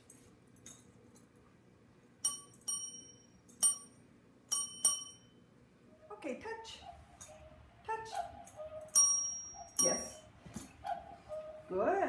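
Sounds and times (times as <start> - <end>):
service bell ding: 2.2 - 5.4, 8.8 - 10.3.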